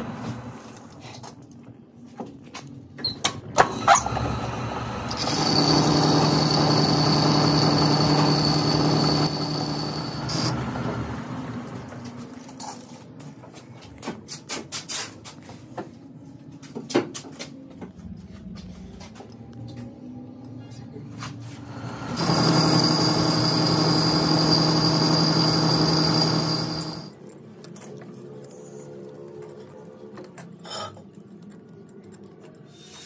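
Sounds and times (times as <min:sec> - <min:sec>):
lathe machine hum: 0:03.7 - 0:12.0, 0:21.6 - 0:27.1.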